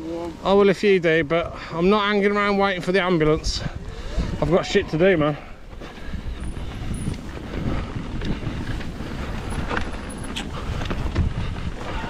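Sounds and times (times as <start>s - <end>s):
wind on microphone: 3.2s - 12.0s
tyres rumbling over dirt: 5.3s - 12.0s
bike knocks and rattles: 6.9s - 11.6s.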